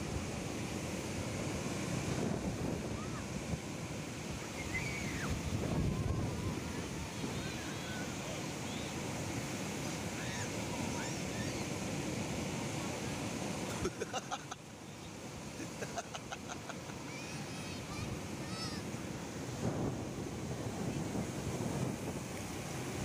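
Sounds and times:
wind on microphone: 0.0 - 12.3, 17.8 - 23.0
ocean surf breaking on beach: 0.0 - 23.0.

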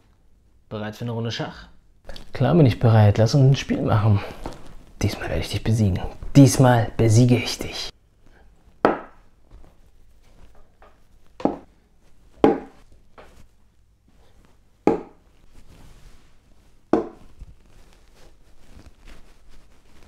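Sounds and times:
wooden chess pieces clacking: 12.4 - 13.4.

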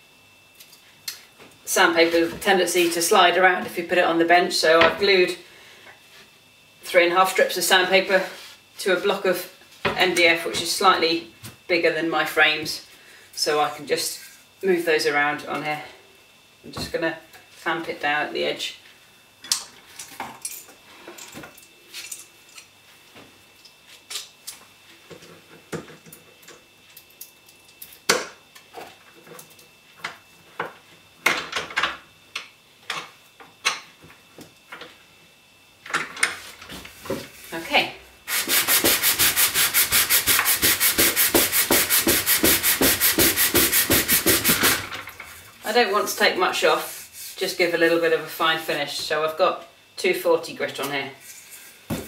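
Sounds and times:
wooden frame rasping on sandpaper: 38.3 - 44.6.

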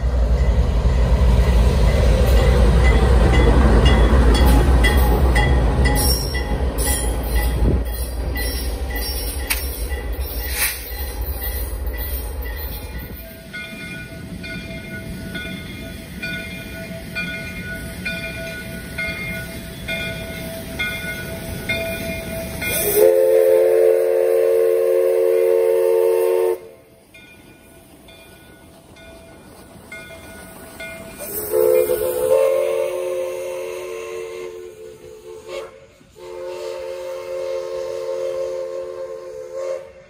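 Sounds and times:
locomotive bell ringing: 1.8 - 23.0, 27.0 - 32.3
chime steam whistle: 4.4 - 28.4, 30.1 - 40.0.

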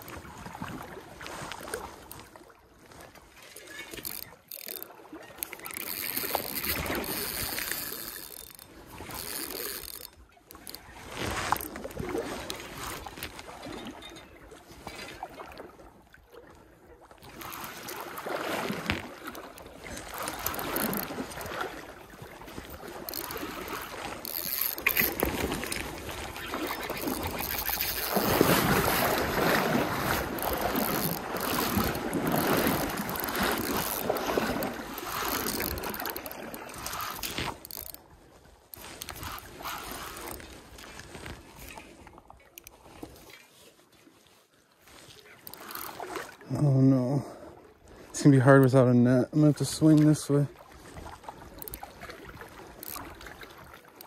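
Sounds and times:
water splashing and sloshing: 0.0 - 54.0
fishing reel cranking: 3.6 - 13.4, 17.3 - 38.0, 38.7 - 41.8, 45.4 - 46.2, 51.5 - 51.9, 52.8 - 53.4.

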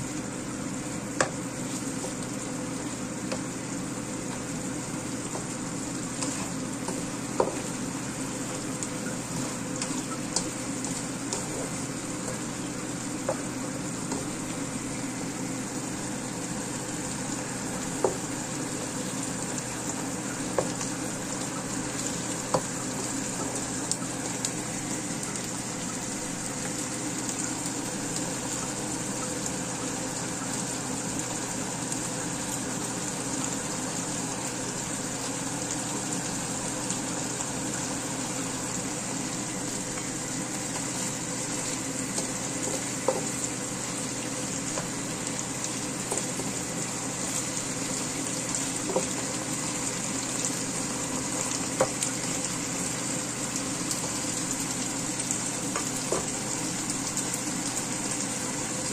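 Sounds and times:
steady low hum: 0.0 - 29.0
sauce bubbling and sizzling: 0.0 - 58.9.

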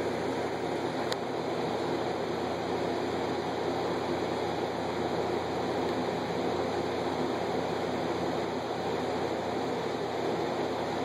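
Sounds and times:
aquarium filter water rushing: 0.0 - 11.0.

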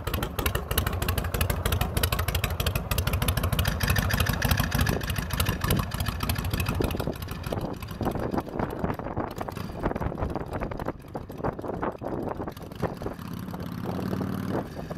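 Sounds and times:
motorcycle engine loping exhaust: 0.0 - 14.9.

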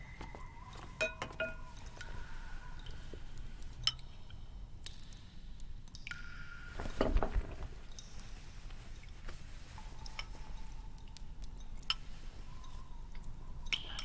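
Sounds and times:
porcelain bowls and spoon clinking: 1.0 - 2.0.

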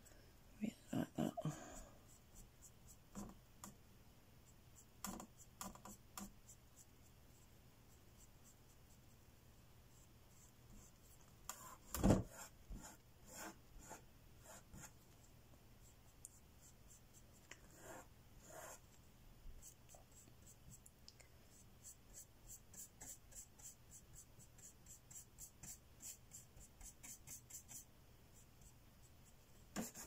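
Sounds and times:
paintbrush scratching on canvas: 10.0 - 15.0, 16.6 - 18.8, 29.7 - 30.0.

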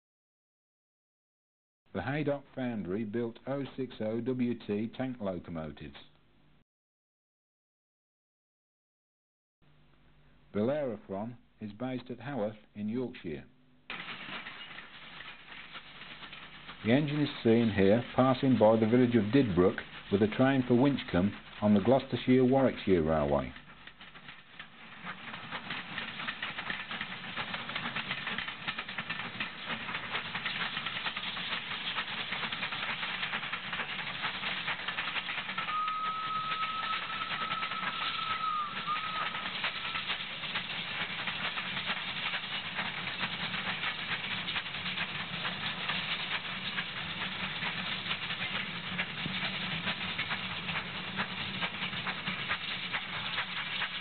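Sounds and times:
steam locomotive running: 15.1 - 54.0
steam locomotive whistle: 35.6 - 40.0.

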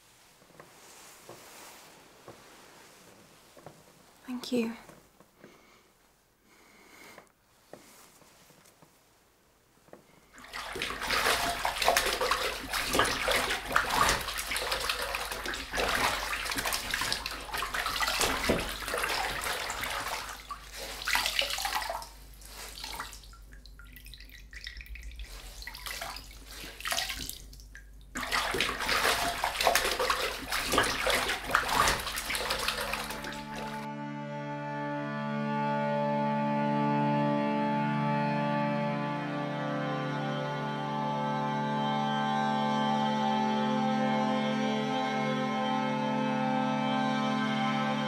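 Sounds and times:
water splashing and sloshing: 9.9 - 33.9.

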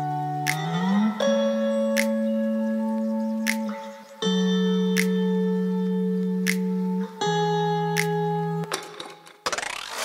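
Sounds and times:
fast run of clicks: 8.8 - 10.0.

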